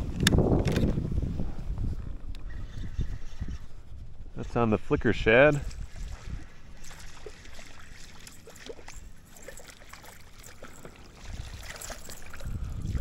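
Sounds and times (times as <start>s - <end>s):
wind rumble on microphone: 0.0s - 9.2s, 11.2s - 13.0s
fish splashing in water: 5.9s - 13.0s.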